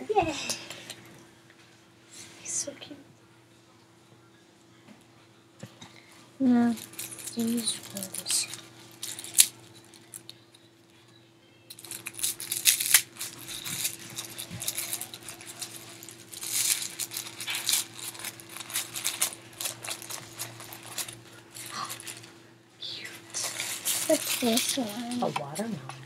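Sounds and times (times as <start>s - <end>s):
plastic bag crinkling: 6.6s - 10.4s, 11.7s - 22.4s, 23.2s - 25.7s.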